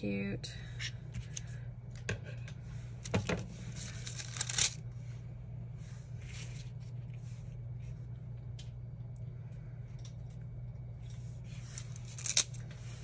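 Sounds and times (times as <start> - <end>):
steady low hum: 0.0 - 13.0
paper pages rustling: 3.2 - 4.8, 11.5 - 12.7.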